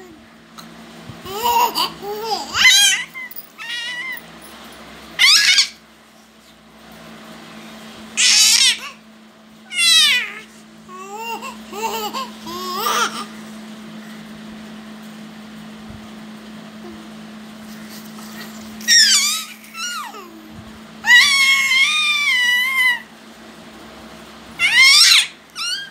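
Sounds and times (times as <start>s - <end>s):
steady low hum: 0.0s - 25.9s
infant babbling and squealing: 1.3s - 4.3s, 9.7s - 13.3s, 18.8s - 20.4s, 21.0s - 23.1s, 24.6s - 25.9s.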